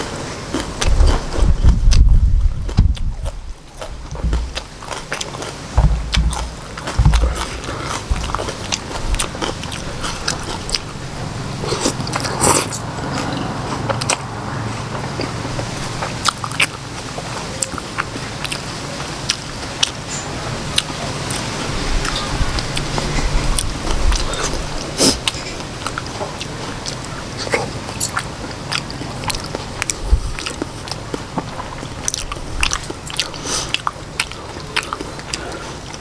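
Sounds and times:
person chewing food: 0.0 - 20.1, 20.7 - 36.0
low thumps: 0.9 - 11.4
noodle slurp: 6.4 - 15.6, 21.3 - 34.0
wet mouth clicks and smacks: 11.7 - 14.3.

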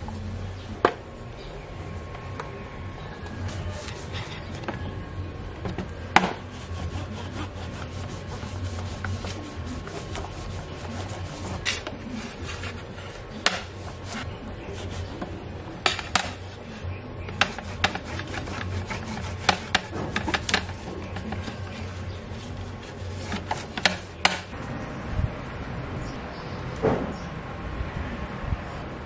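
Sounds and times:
rubbing and scraping on wood: 3.2 - 4.9, 5.8 - 24.6.

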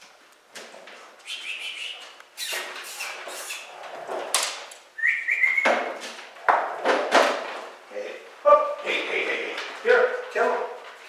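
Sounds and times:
short high chirping squeaks: 1.3 - 3.7.

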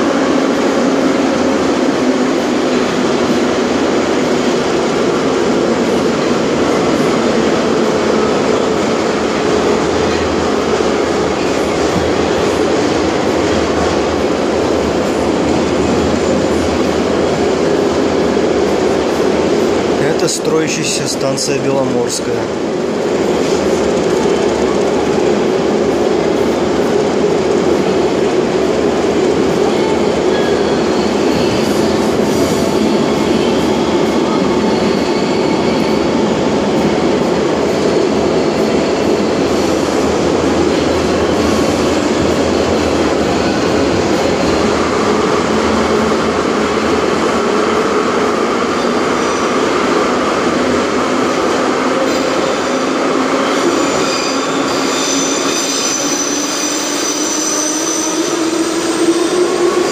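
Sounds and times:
train wheels rumbling: 0.0 - 59.9
high wheel squeals: 53.6 - 59.1.

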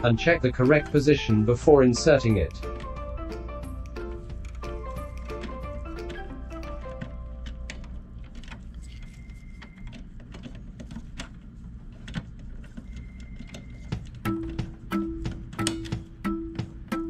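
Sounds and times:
plastic parts clicking and tapping: 3.8 - 17.0.

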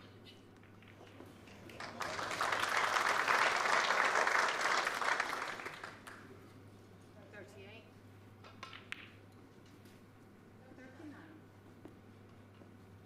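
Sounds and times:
audience applauding: 1.6 - 6.2.

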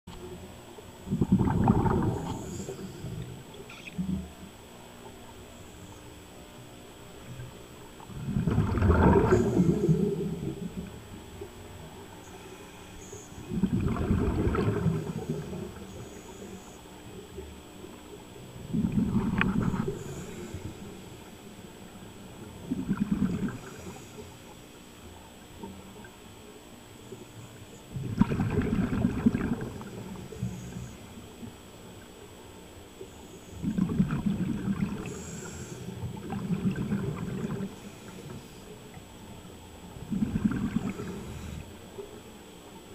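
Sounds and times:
air bubbling underwater: 1.1 - 2.5, 8.1 - 10.8, 13.5 - 15.6
exhaled breath bubbling underwater: 1.1 - 4.3, 8.0 - 11.0, 12.2 - 16.9, 18.6 - 21.4, 22.4 - 24.5, 27.9 - 31.2, 33.5 - 39.0, 39.9 - 41.8
diver breathing through regulator: 12.2 - 16.9, 18.7 - 21.2, 35.0 - 36.1, 37.4 - 38.8, 40.1 - 41.7.

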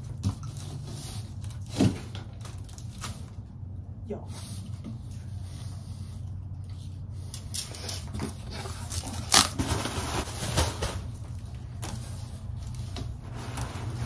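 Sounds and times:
steady low hum: 0.0 - 14.0
cardboard flaps and packing rustling: 7.6 - 14.0.

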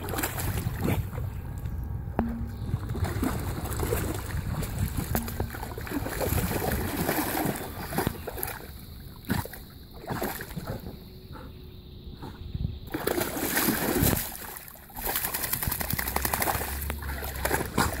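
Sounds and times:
dog splashing through water: 0.0 - 1.2, 2.8 - 10.8, 12.9 - 18.0.

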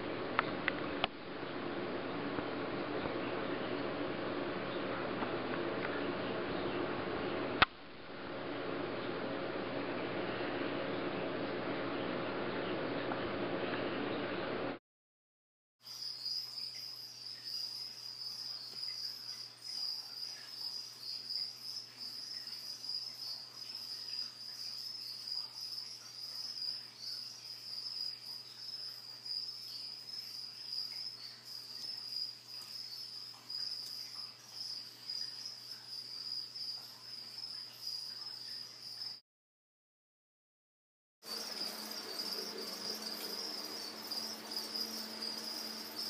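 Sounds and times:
crickets chirping: 15.8 - 39.2, 41.2 - 46.0.

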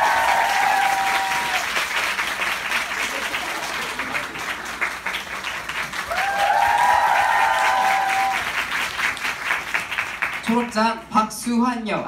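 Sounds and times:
held cheer: 0.0 - 1.8, 6.0 - 8.6
audience clapping: 0.0 - 11.0.

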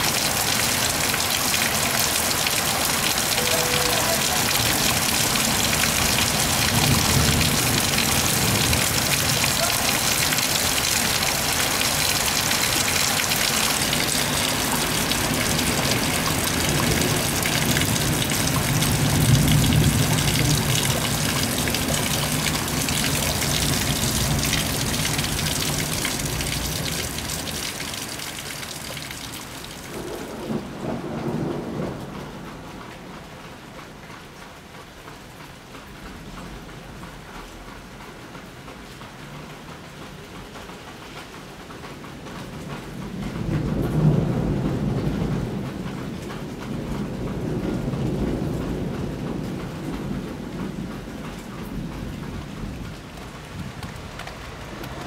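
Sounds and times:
heavy rain pouring: 0.0 - 55.0
deep rolling thunder: 4.4 - 11.6, 13.7 - 27.6, 29.9 - 32.8, 43.1 - 53.8.

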